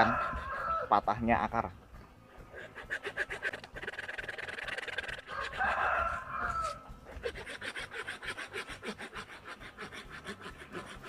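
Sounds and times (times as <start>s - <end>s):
hand saw cutting branch: 2.5s - 6.0s, 6.6s - 11.0s.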